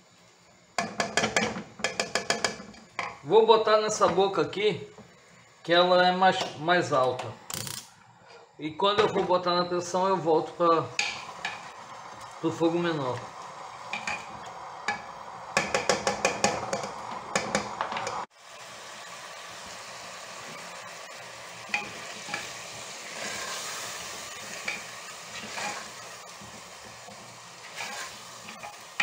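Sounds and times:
food sizzling in a pot: 0:00.0 - 0:06.7, 0:09.3 - 0:29.0
spoon scraping and knocking pot: 0:00.8 - 0:03.2.

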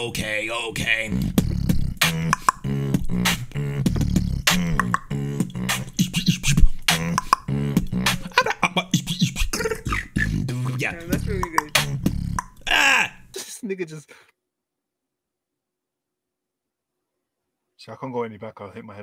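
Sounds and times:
person beatboxing: 0:00.0 - 0:13.1
low hummed bass line: 0:01.1 - 0:12.4.

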